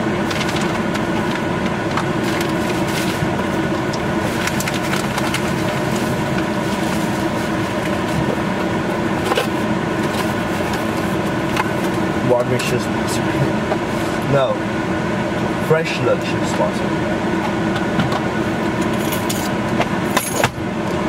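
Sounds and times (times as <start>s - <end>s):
car air conditioning hum: 0.0s - 21.0s
plastic bag crinkling: 4.2s - 8.2s.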